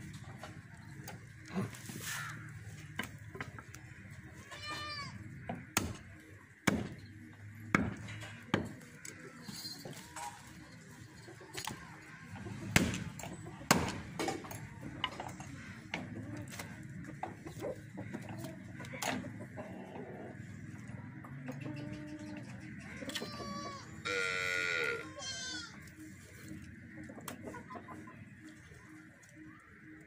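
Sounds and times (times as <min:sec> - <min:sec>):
cleaver chopping meat and bone: 0:05.6 - 0:07.0, 0:07.7 - 0:08.8, 0:12.7 - 0:14.5.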